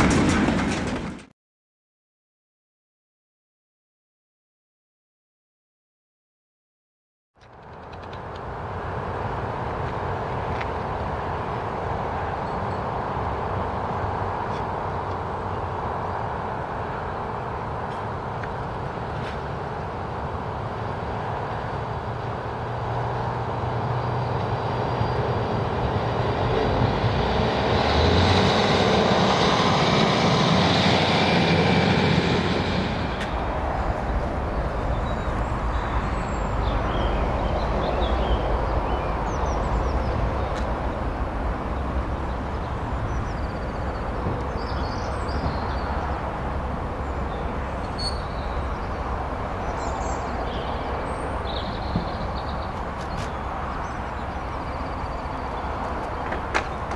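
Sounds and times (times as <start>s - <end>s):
diesel train passing: 7.5s - 56.9s
low rumble: 24.5s - 45.6s.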